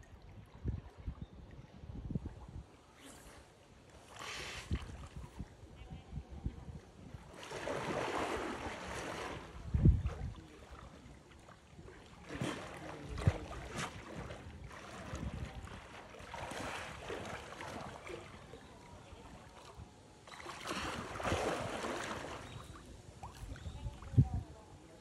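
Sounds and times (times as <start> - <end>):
water sloshing and splashing: 7.2 - 24.4.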